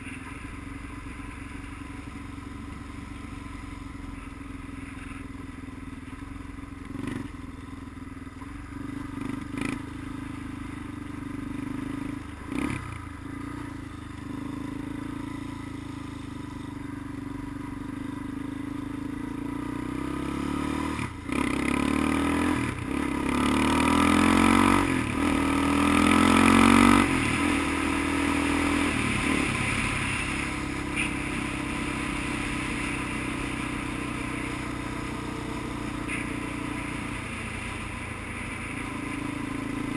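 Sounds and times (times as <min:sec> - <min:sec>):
vehicle engine accelerating: 0:19.5 - 0:39.9.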